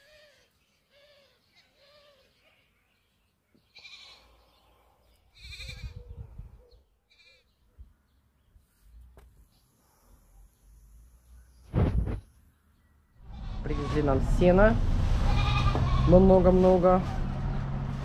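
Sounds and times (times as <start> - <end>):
livestock bleating: 3.7 - 4.4, 5.3 - 6.0, 7.1 - 7.5, 15.3 - 16.3
low rumble: 13.2 - 18.0.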